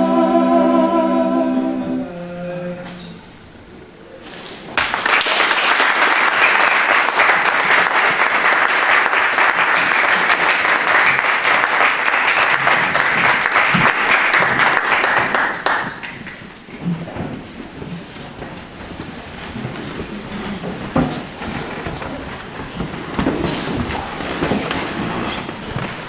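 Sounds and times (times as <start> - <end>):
audience applauding: 4.7 - 16.9.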